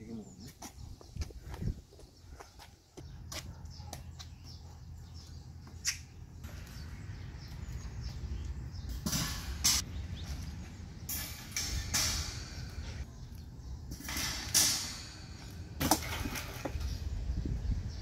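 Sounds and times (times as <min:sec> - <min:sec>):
wire shelf panels clinking: 0:11.0 - 0:13.0.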